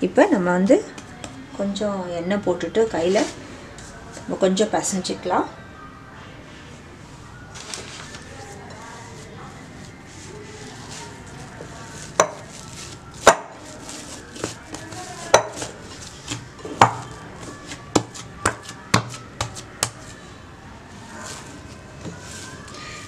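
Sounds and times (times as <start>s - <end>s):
hands kneading dough: 7.6s - 20.2s.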